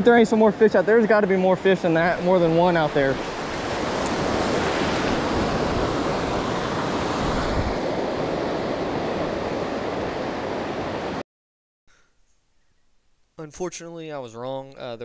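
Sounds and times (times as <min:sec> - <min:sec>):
ocean waves breaking: 0:00.0 - 0:11.2.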